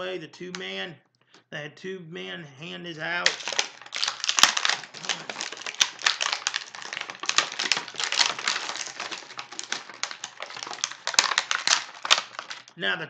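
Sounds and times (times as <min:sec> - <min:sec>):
plastic packaging crackling and clicking: 0:03.2 - 0:12.8.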